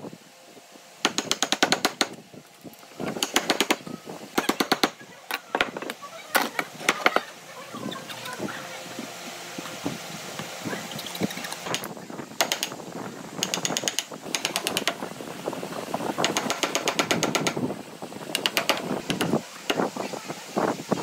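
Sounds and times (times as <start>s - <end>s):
power tool chopping wood: 1.0s - 2.2s, 3.1s - 3.8s, 16.2s - 17.6s.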